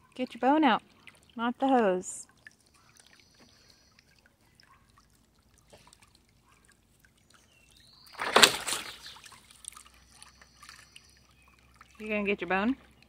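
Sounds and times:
water dripping: 0.0 - 13.0
water splashing: 0.0 - 13.0.

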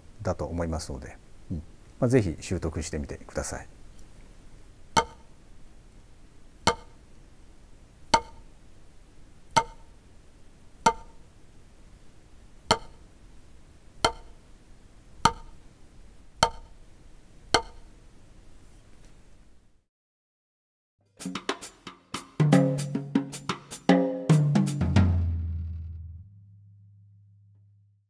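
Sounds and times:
drumsticks tapping practice pad: 4.9 - 5.4, 6.6 - 7.1, 8.1 - 8.6, 9.5 - 10.0, 10.8 - 11.4, 12.7 - 13.2, 14.0 - 14.5, 15.2 - 15.6, 16.4 - 16.9, 17.5 - 18.0.

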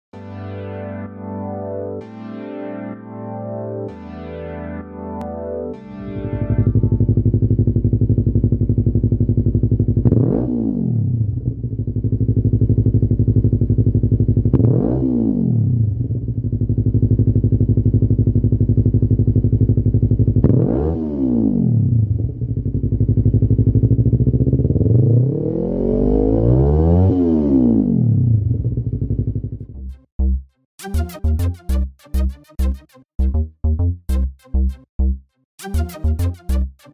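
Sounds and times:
motorcycle engine idling and revving: 6.2 - 29.9.

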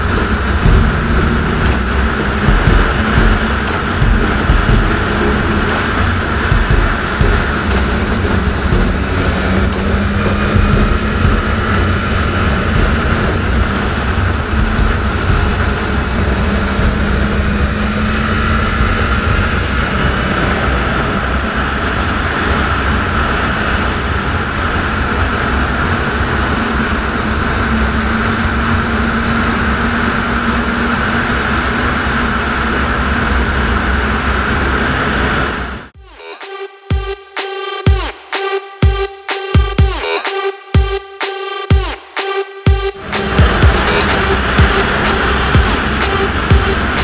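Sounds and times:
motorcycle engine at speed: 0.0 - 34.9.

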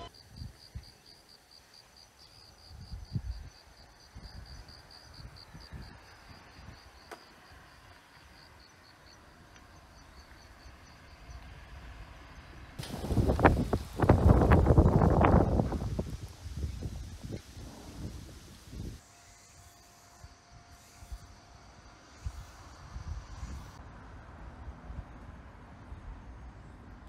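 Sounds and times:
insect chirping: 0.0 - 11.5.

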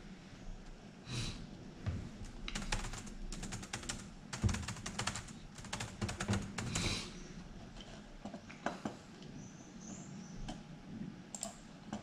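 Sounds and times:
typing on computer keyboard: 2.5 - 7.1, 11.3 - 11.6.

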